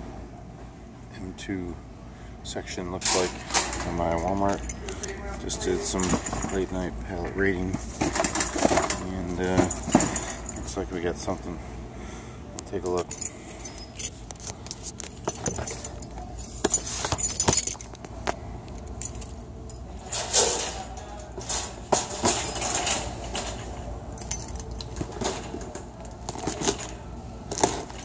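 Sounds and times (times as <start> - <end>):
wire shopping cart rattling: 3.0 - 6.8, 7.9 - 10.8, 19.9 - 28.0.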